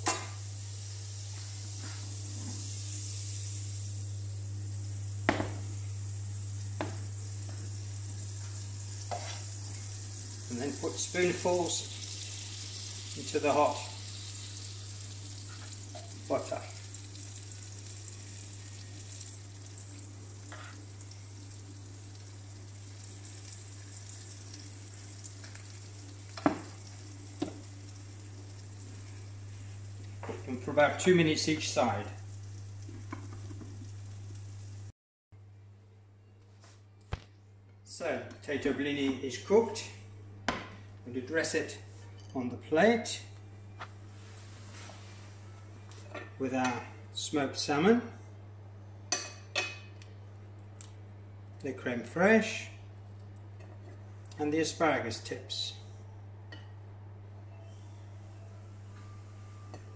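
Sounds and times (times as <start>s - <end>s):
butter sizzling in a frying pan: 0.0s - 34.9s
steady low hum: 0.0s - 36.3s.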